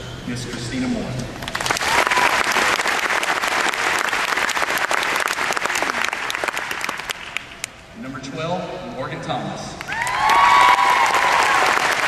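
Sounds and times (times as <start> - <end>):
audience applauding: 1.5 - 7.7, 9.8 - 12.0.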